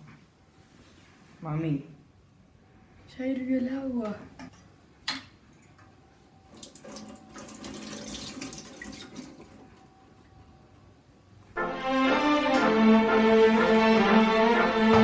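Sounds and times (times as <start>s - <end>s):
water pouring into a sink: 6.5s - 9.8s.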